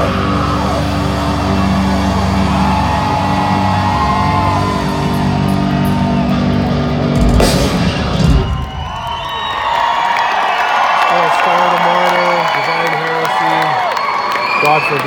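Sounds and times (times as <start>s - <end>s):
heavy metal band playing live: 0.0s - 9.2s
loud crashing hit: 7.2s - 9.2s.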